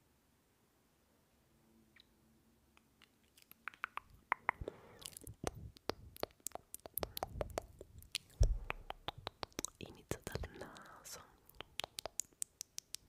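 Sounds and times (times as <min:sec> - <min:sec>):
crisp clicks and crackles: 0:02.8 - 0:08.4.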